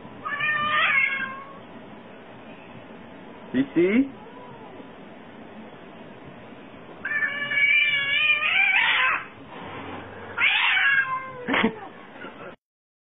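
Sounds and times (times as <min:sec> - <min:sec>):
cat meowing: 0:00.2 - 0:01.6, 0:04.2 - 0:04.8, 0:07.0 - 0:09.3, 0:10.4 - 0:11.5.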